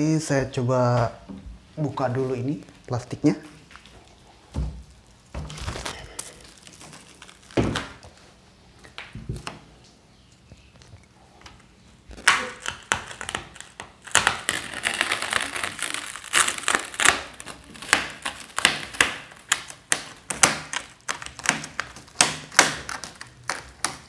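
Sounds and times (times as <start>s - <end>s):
plastic wrap crinkling and crackling: 1.8s - 24.0s.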